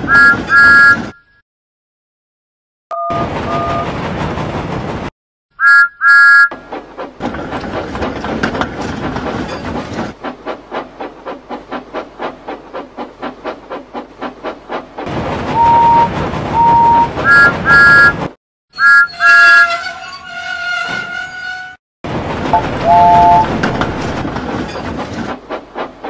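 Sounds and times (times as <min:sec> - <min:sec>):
steam train whistle: 0:00.1 - 0:01.0, 0:05.6 - 0:06.5, 0:15.6 - 0:18.2, 0:18.8 - 0:21.8, 0:22.8 - 0:23.5
train wheels clickety-clack: 0:03.2 - 0:05.1, 0:06.0 - 0:18.4, 0:22.1 - 0:26.0
steam train chuffing: 0:06.0 - 0:18.3, 0:22.4 - 0:26.0.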